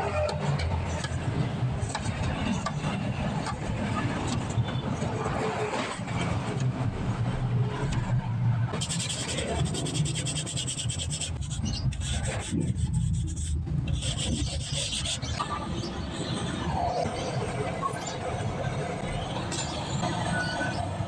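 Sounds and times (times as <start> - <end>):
hand tool scraping metal tubes: 8.8 - 15.4.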